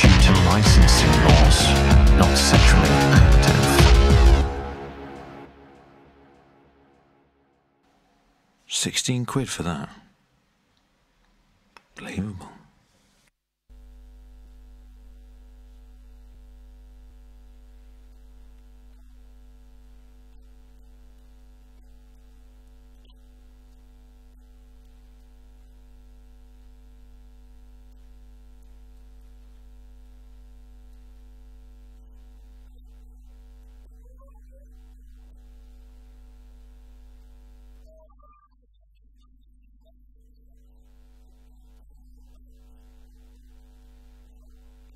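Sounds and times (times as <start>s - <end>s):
electrical mains hum: 13.7s - 44.9s.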